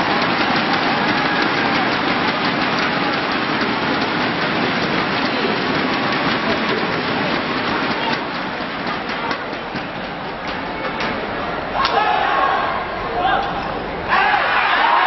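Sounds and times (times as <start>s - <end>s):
scattered clapping: 0.0s - 12.0s
crowd voices: 0.0s - 15.0s.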